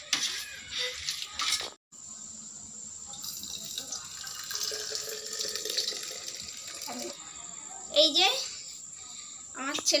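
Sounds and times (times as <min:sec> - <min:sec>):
milk pouring into bottle: 0:03.1 - 0:07.2.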